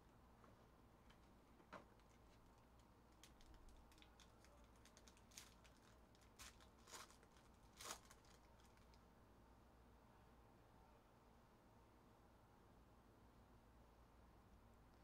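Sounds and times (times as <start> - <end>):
foil wrapper crinkling and tearing: 2.0 - 9.0.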